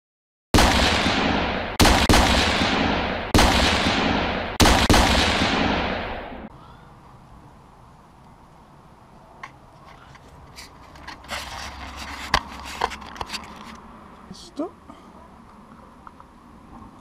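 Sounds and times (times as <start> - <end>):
gunshots with echoing tails: 0.6 - 6.5.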